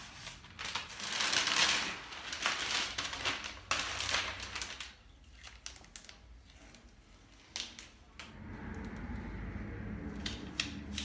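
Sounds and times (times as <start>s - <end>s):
tape peeling and crinkling: 0.0s - 8.1s
steady low hum: 8.2s - 11.0s.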